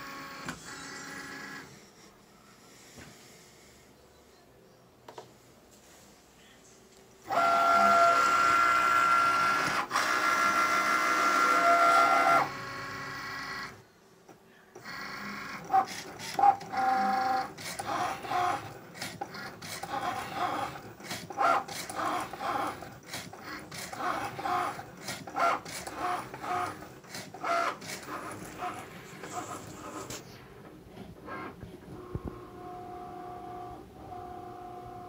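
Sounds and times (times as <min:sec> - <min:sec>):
cutting machine motor whine: 0:00.0 - 0:02.8, 0:07.2 - 0:13.9, 0:14.7 - 0:35.0
stop-start motor whirring: 0:07.3 - 0:13.8, 0:14.8 - 0:30.4.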